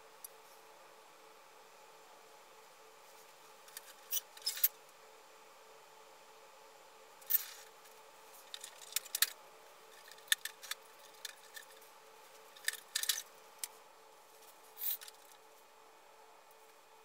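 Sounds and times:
faint steady hum: 0.0s - 17.0s
plastic parts clicking and clattering: 8.5s - 9.4s, 10.0s - 11.8s, 12.5s - 13.3s.

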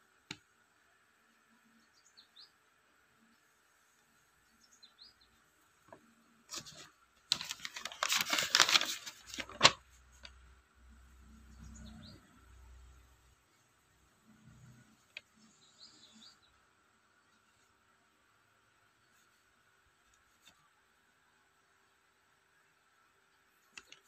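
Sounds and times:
faint bird chirps: 1.5s - 3.5s, 14.3s - 17.7s
paper crackling and rustling: 5.9s - 10.4s.

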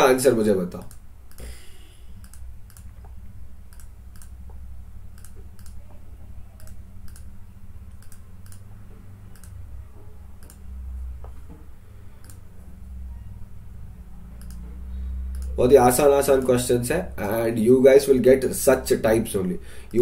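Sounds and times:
steady low hum: 0.0s - 20.0s
computer mouse clicks: 2.2s - 5.9s, 6.6s - 7.3s, 7.9s - 8.7s, 9.3s - 9.6s, 10.4s - 10.7s, 12.2s - 12.5s, 14.3s - 14.7s, 15.3s - 15.6s.

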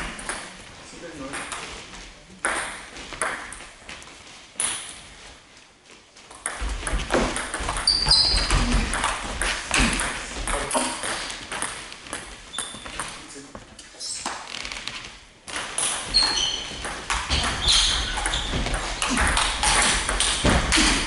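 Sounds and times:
brief high squeak: 16.1s - 16.7s.

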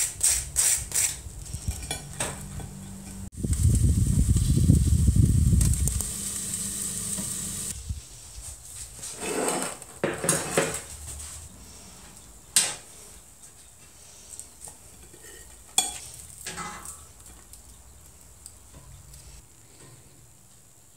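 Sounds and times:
fish sizzling under a grill: 3.4s - 7.8s.

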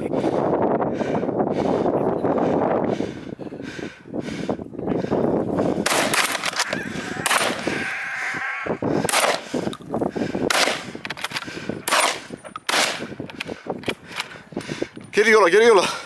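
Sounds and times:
gunshots: 5.8s - 7.7s, 9.1s - 9.5s, 10.5s - 10.9s, 11.8s - 13.1s.

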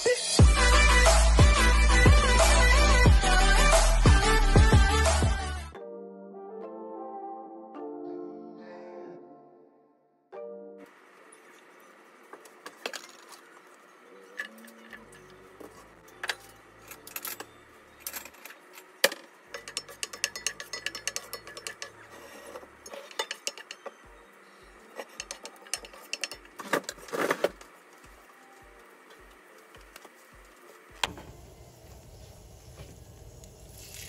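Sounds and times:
wooden spoon scraping skillet: 19.6s - 23.8s, 24.8s - 27.6s
onion sizzling in oil: 30.2s - 34.0s.

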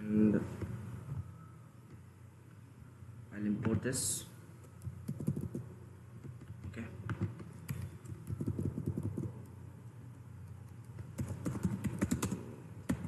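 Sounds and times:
computer keyboard keystrokes: 4.8s - 5.6s, 10.4s - 13.0s.

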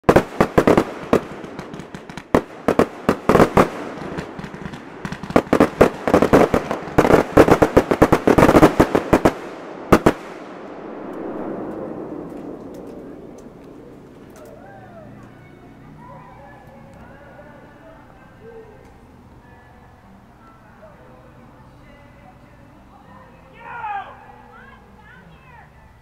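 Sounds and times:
fireworks bursting with sharp bangs: 0.0s - 14.7s.

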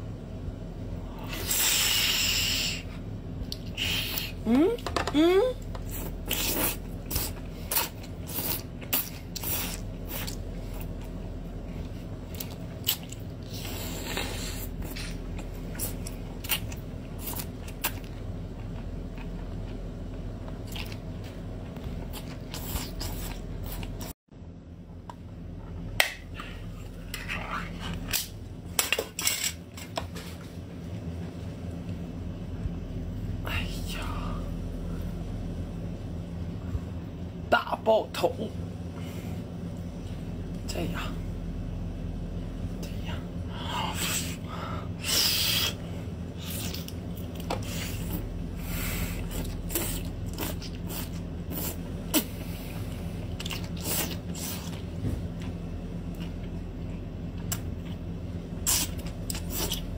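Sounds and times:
steady low hum: 0.0s - 59.9s
wet slurping and sucking: 1.2s - 4.4s, 5.9s - 10.4s, 45.0s - 54.9s, 58.6s - 59.9s.

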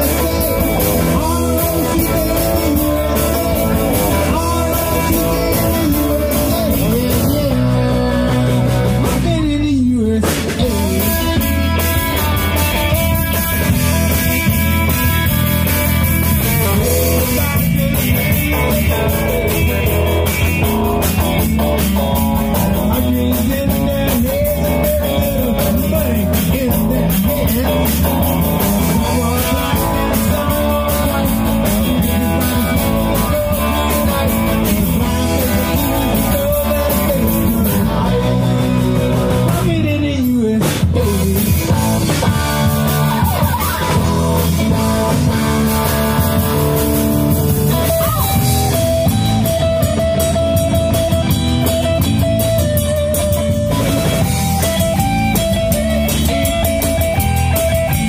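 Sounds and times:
person singing into microphone: 0.0s - 11.8s, 22.4s - 45.4s
drum kit: 0.0s - 58.0s
electric guitars: 0.0s - 58.0s.

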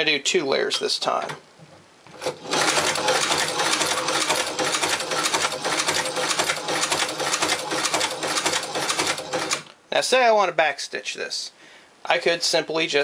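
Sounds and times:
sewing machine clattering: 2.1s - 9.7s.

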